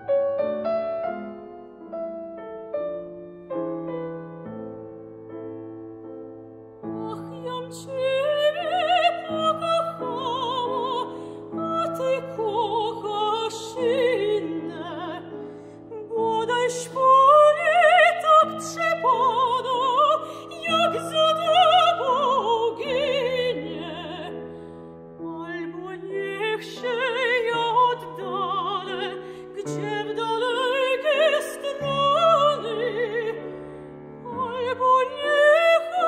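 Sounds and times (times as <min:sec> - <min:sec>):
piano chords: 0:00.0 - 0:36.0
soprano singing with vibrato: 0:06.9 - 0:24.5, 0:25.2 - 0:33.6, 0:34.2 - 0:36.0.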